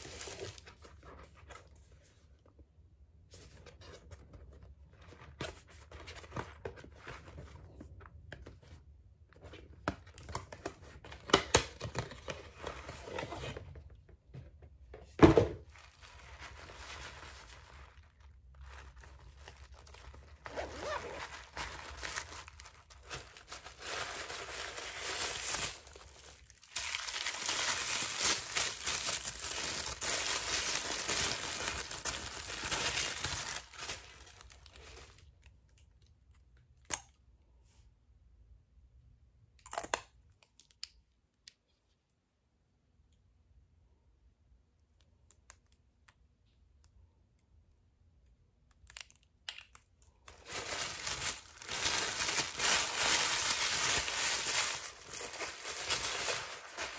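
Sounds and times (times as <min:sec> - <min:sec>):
paper rustling and tearing: 0:50.3 - 0:56.9.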